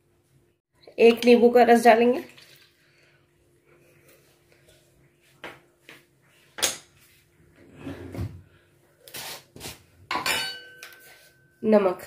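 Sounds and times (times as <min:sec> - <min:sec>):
kitchen utensils clicking and knocking: 0:10.1 - 0:11.1.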